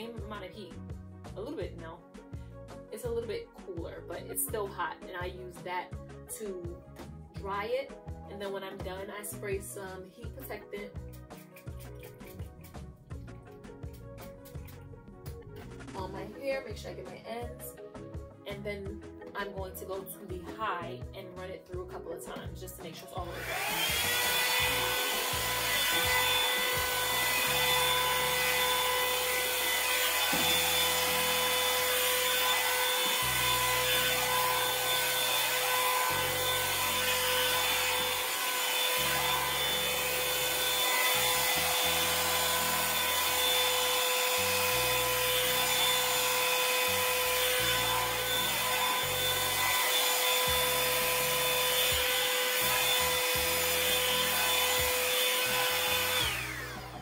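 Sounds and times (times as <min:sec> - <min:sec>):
brush pulled through hair: 0:11.1 - 0:12.9
hair dryer blowing: 0:23.0 - 0:57.0.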